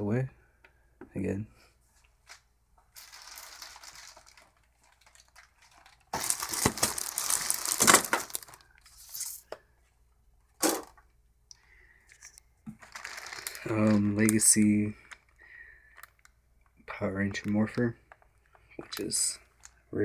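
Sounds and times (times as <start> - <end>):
plastic packaging crinkling: 2.2 - 9.4, 12.1 - 16.3.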